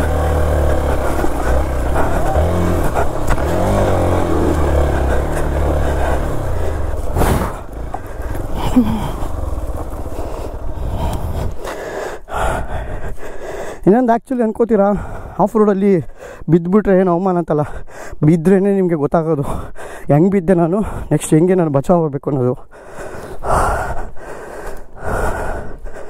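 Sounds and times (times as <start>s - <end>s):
motorcycle engine revving: 0.0s - 11.6s.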